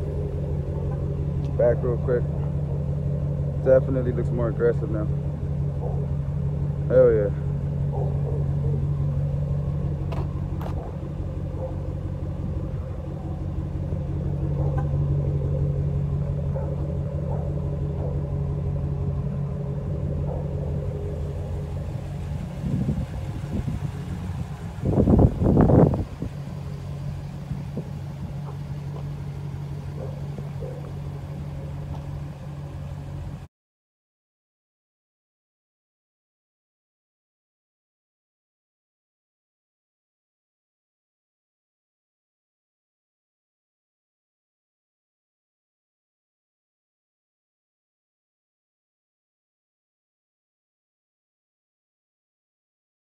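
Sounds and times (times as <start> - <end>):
pickup engine idling: 0.0 - 33.5.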